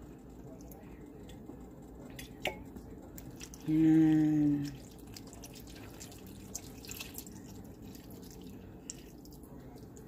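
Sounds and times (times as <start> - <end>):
liquid pouring trickle: 4.5 - 10.0.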